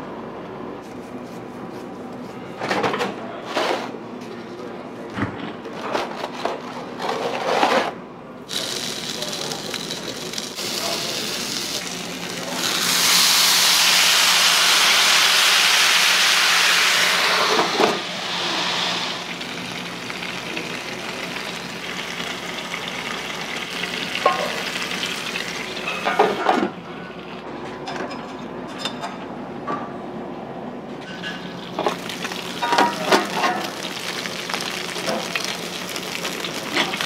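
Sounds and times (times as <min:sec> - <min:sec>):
dumplings sizzling: 0:08.5 - 0:26.2, 0:31.7 - 0:37.0
water hissing into steam: 0:12.4 - 0:21.3.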